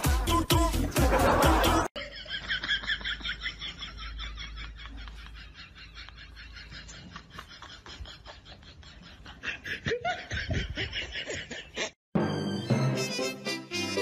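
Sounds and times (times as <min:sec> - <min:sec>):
music: 0:00.0 - 0:01.9, 0:12.1 - 0:14.0
breathy snickering laughter: 0:01.1 - 0:12.0.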